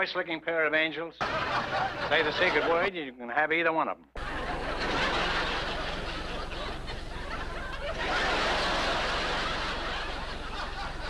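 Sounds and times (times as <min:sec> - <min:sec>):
audience laughter: 0:01.2 - 0:02.9, 0:04.2 - 0:11.0
low mains hum: 0:04.2 - 0:11.0.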